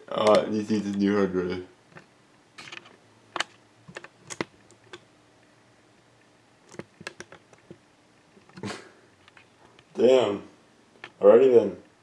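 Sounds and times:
laptop keys clicking: 2.7 - 5.0, 6.7 - 7.8.

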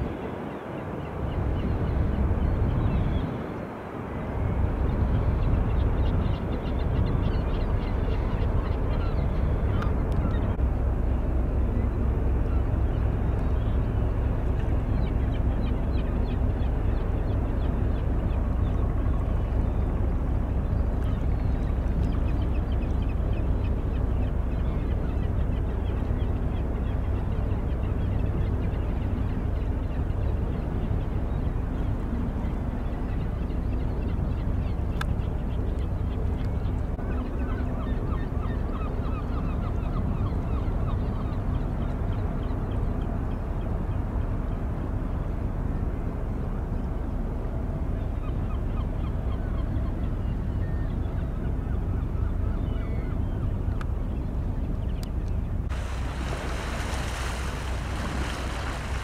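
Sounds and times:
steady low rumble: 4.0 - 38.4, 53.2 - 59.0
birds chirping: 48.0 - 59.0
waterbirds honking: 55.4 - 59.0.

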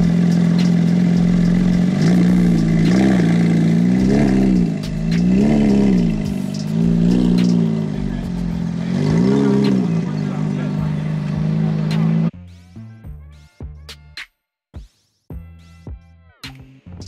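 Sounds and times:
car engine idling and revving: 0.0 - 12.3.

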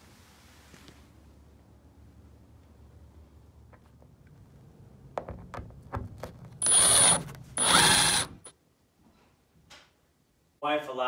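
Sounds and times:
power drill whining: 6.6 - 8.5.

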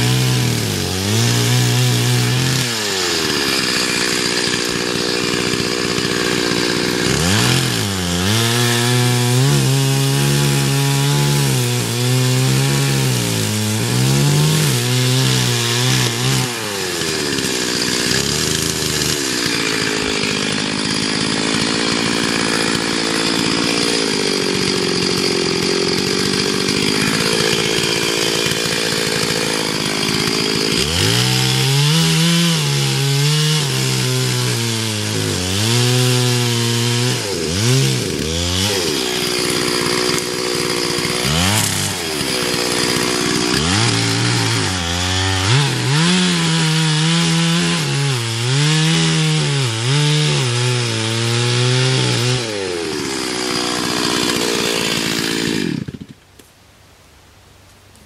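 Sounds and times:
chainsaw cutting wood: 0.0 - 56.4.

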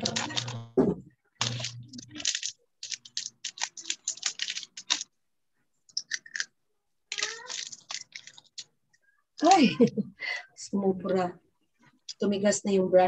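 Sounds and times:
typing on computer keyboard: 0.0 - 0.6, 1.4 - 5.1, 7.1 - 8.6
video call audio: 0.0 - 5.0.

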